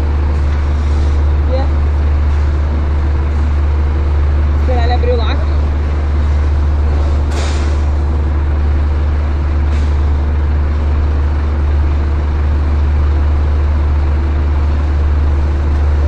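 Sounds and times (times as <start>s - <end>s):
truck diesel engine idling: 0.0s - 16.0s.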